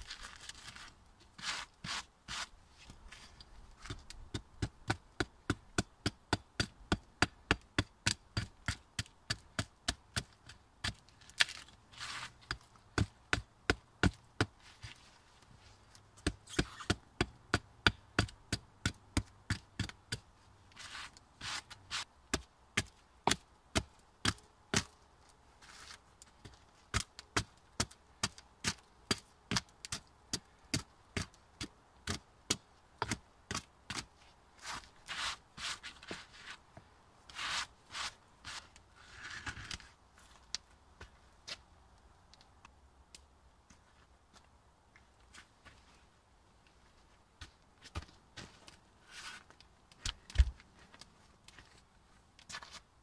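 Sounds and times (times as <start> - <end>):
wood being shaved: 34.6 - 36.6, 37.3 - 39.6.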